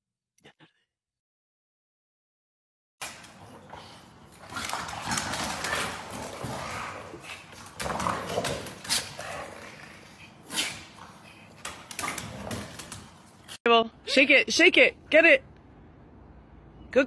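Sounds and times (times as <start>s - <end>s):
dogs grunting and vocalising: 3.0s - 13.6s.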